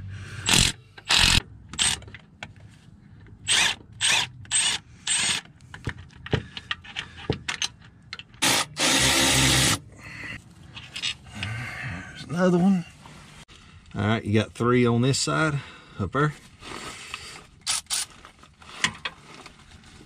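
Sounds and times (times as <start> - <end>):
cordless tool spinning bolts: 0.4 - 2.0.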